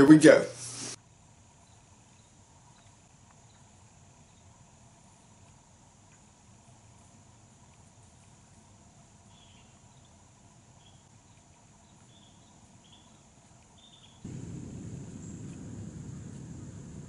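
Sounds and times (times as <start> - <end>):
insects buzzing: 1.5 - 17.0
loud low rumble: 14.3 - 17.0.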